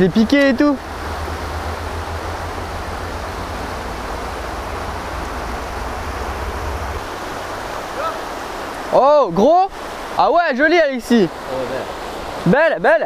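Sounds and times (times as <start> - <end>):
low steady rumble: 0.0 - 7.8
river rushing over rocks: 0.0 - 13.0.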